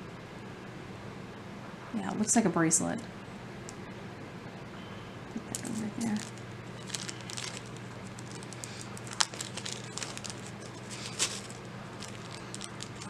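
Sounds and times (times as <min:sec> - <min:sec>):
low hum: 0:03.0 - 0:13.0
plastic bag crinkling: 0:05.4 - 0:13.0
chain clicking: 0:05.5 - 0:13.0.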